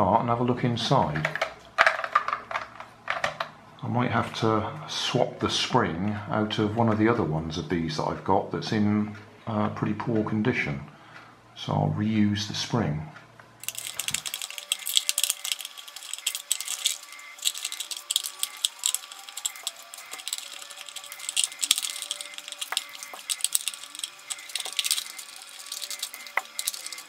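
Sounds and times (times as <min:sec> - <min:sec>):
screwdriver clicking on screws: 0:13.6 - 0:27.0.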